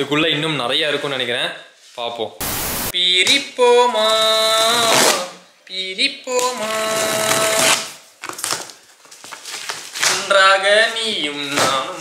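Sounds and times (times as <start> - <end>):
person singing: 2.9 - 7.9
knife slitting packing tape: 6.7 - 8.8.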